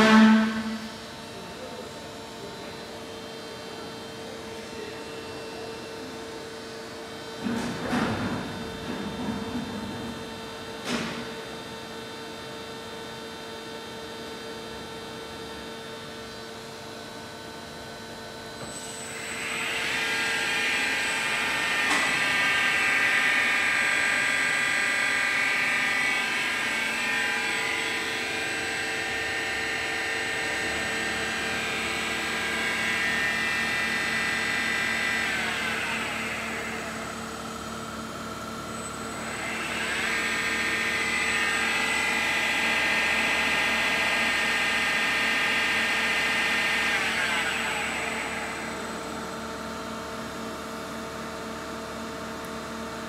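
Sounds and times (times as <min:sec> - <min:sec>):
milling machine spindle whine: 0:17.7 - 0:53.0.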